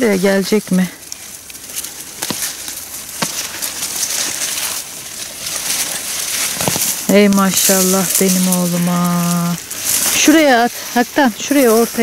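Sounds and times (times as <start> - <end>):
dry leaves and stems rustling: 0.0 - 12.0
plant stems snapping: 1.0 - 10.4.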